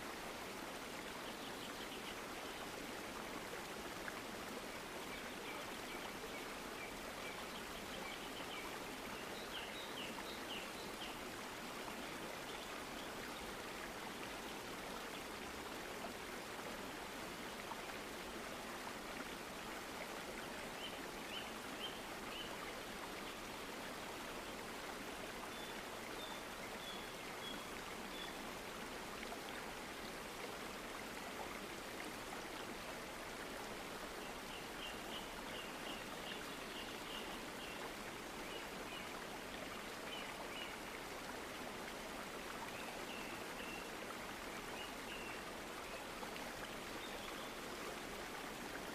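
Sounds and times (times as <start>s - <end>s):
rushing stream: 0.0s - 48.9s.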